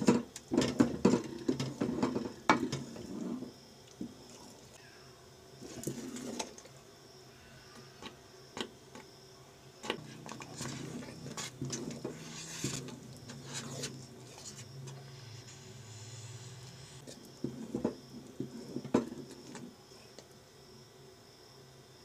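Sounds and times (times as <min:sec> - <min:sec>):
wooden spoon scraping a metal pot: 0:00.0 - 0:04.6, 0:05.6 - 0:06.7, 0:09.8 - 0:19.7.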